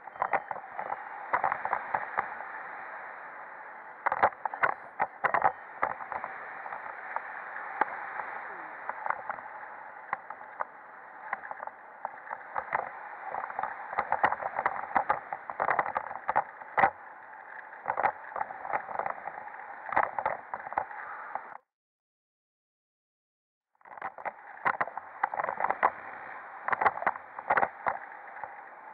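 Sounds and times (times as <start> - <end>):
wind rushing over microphone: 0.0 - 21.5.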